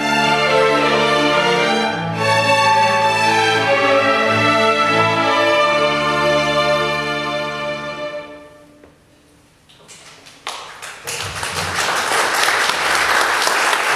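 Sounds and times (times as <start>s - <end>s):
string orchestra chord: 0.0s - 8.7s
applause: 9.9s - 13.9s.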